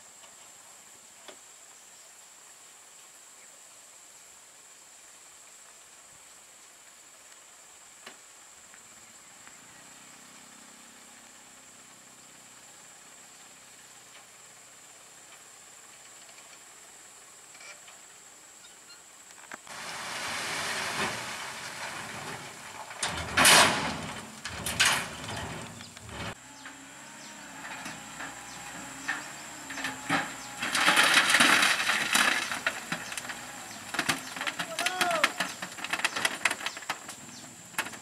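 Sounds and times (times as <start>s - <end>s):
passing traffic: 19.7s - 35.9s.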